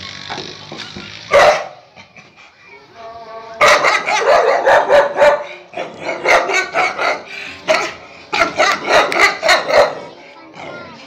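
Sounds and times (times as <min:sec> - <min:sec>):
dog barking rapidly: 0:01.3 - 0:01.8, 0:03.6 - 0:10.1.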